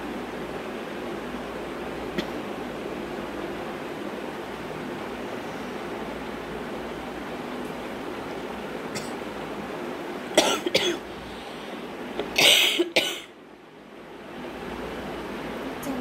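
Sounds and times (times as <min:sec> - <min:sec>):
background hiss: 0:00.0 - 0:13.7
person coughing: 0:10.4 - 0:11.0, 0:12.3 - 0:13.3.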